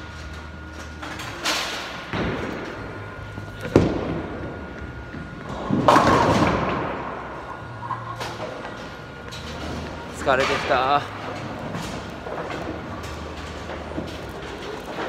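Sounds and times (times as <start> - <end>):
bowling ball thud: 3.6 - 7.2
bowling pins crashing: 5.4 - 7.2.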